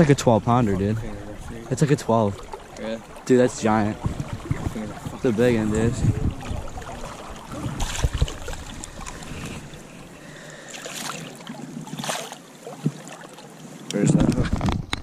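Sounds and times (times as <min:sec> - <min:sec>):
river current running: 0:00.0 - 0:14.1
fish splashing in a net: 0:06.3 - 0:09.2, 0:10.6 - 0:13.4.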